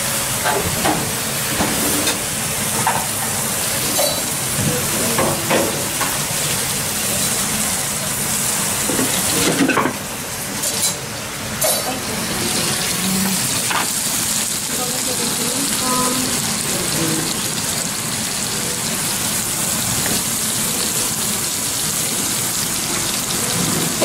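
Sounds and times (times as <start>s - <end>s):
meat sizzling on hot plate: 0.0s - 24.0s
metal pans and utensils clinking: 0.3s - 7.7s, 8.8s - 14.1s, 20.0s - 24.0s.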